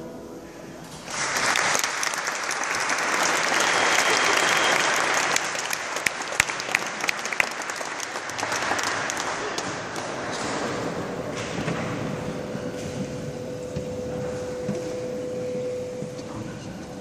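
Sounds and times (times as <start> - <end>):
audience applauding: 0.9 - 10.8
sharp close claps: 1.0 - 11.0.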